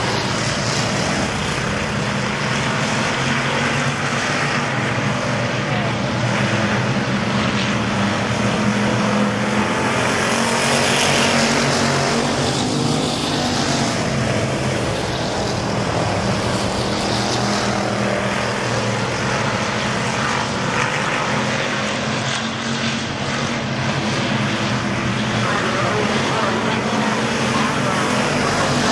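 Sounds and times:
racing car engines droning: 0.0 - 28.9.

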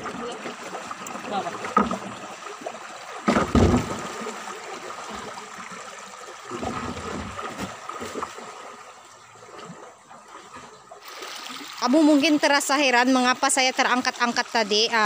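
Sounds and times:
creek water splashing: 0.0 - 15.0
thump against boat hull: 3.2 - 4.1.

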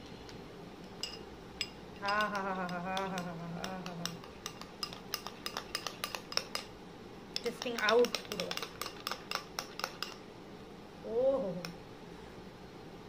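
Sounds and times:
spoon clinking against glass: 1.0 - 3.3, 4.0 - 6.7
woman humming: 2.0 - 4.2, 11.0 - 11.8.

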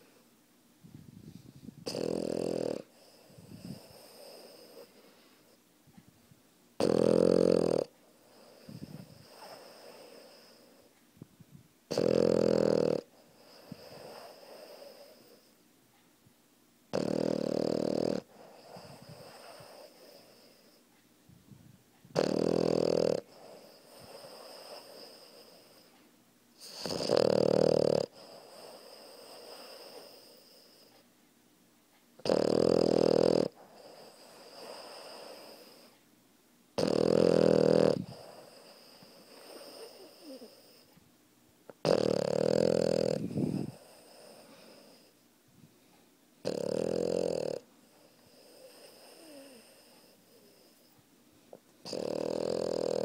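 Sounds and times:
puppy snoring: 0.0 - 0.2, 1.3 - 5.6, 6.8 - 11.0, 11.9 - 15.6, 16.9 - 20.9, 22.0 - 26.0, 26.6 - 31.1, 32.2 - 36.0, 36.8 - 41.0, 41.7 - 45.2, 46.4 - 51.0, 51.6 - 53.0
soft breath: 0.0 - 1.9, 2.8 - 6.4, 8.0 - 11.7, 13.1 - 16.4, 18.2 - 22.1, 23.2 - 26.8, 28.1 - 31.1, 33.5 - 36.0, 38.0 - 41.0, 43.1 - 46.2, 47.7 - 52.0.

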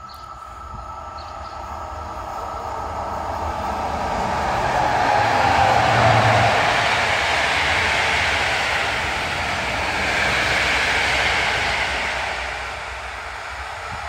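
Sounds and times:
train rushing past on rails: 0.0 - 14.0.

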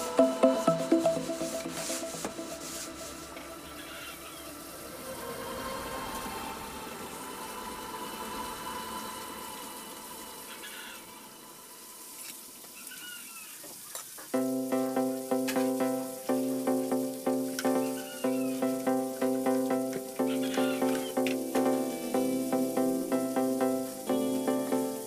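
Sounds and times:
music with steady beat: 0.0 - 3.5, 14.3 - 25.0.

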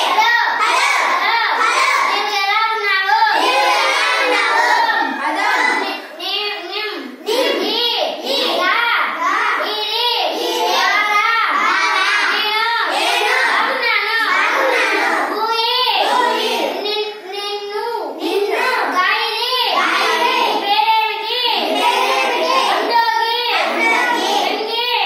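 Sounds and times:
young children singing: 0.0 - 25.0.

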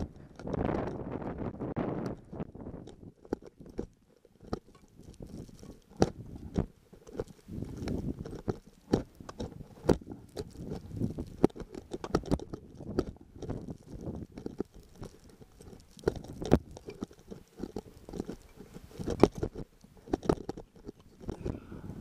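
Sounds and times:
sharp clicks and knocks: 0.0 - 21.6
crampon footsteps crunching in snow: 4.5 - 20.3.

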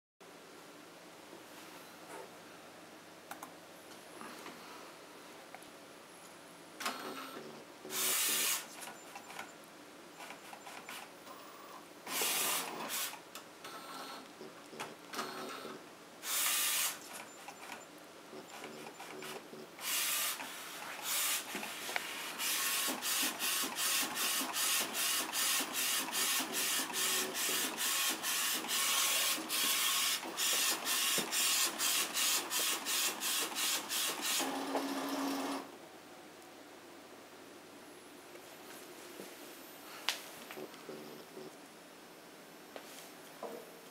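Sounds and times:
printer whirring: 6.8 - 9.5, 10.2 - 14.2, 18.4 - 35.7.

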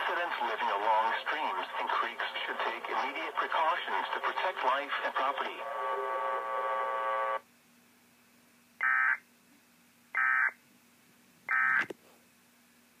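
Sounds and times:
faint steady hum: 0.0 - 13.0
steady buzzy tone: 5.6 - 7.4.

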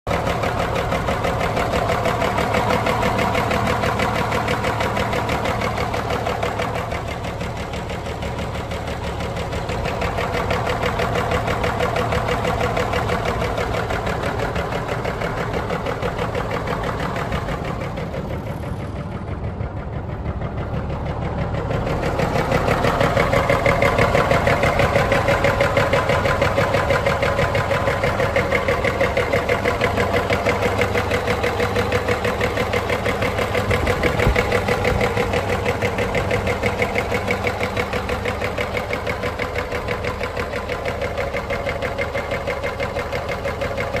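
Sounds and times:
diesel engine idling: 0.0 - 44.0.

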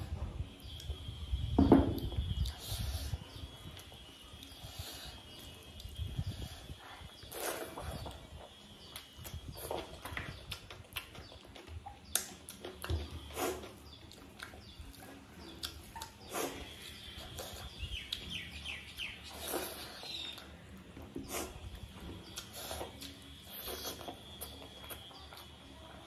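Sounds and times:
wet chewing and lip smacks: 7.2 - 18.3.

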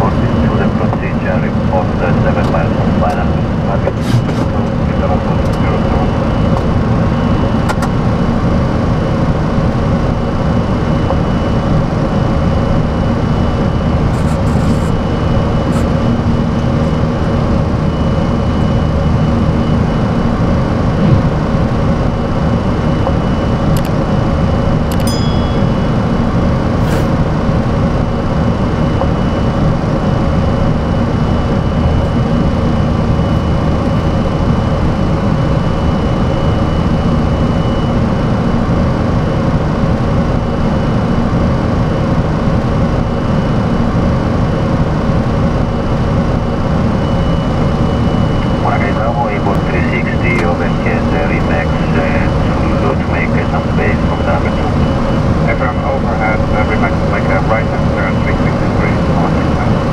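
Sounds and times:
jet engines roaring: 0.0 - 59.9
faint high whine: 10.4 - 39.4, 45.4 - 59.9.

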